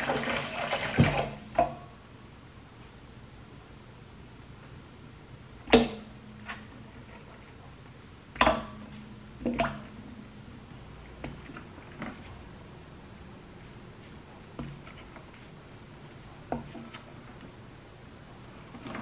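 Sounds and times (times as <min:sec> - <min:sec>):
water splashing: 0:00.0 - 0:01.8.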